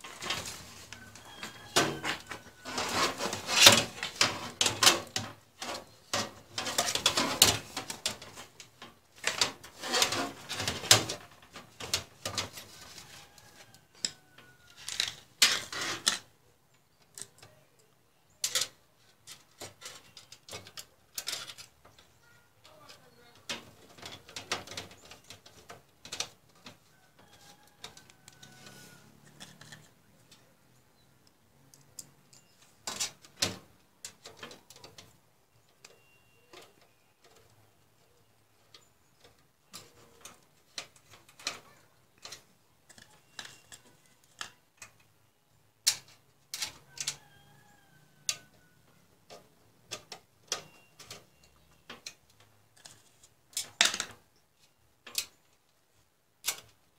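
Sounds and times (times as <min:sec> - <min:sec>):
hands handling parts in computer case: 0:00.0 - 0:16.3.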